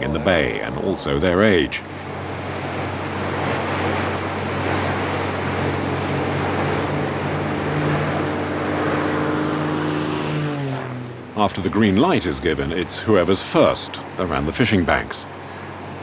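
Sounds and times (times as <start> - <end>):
higher steady drone: 0.0 - 11.8
boat engines humming: 0.0 - 16.0
water rushing and spray: 0.0 - 16.0.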